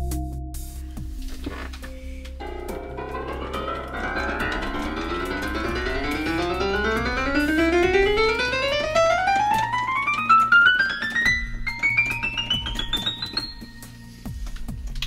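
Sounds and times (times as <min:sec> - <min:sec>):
piano notes climbing: 0:01.2 - 0:15.0
held low piano note: 0:02.0 - 0:13.3.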